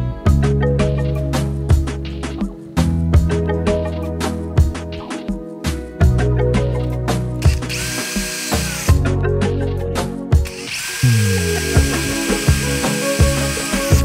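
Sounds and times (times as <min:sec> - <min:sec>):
background music with a beat: 0:00.0 - 0:14.0
cordless drill whining: 0:07.4 - 0:09.0, 0:10.4 - 0:14.0.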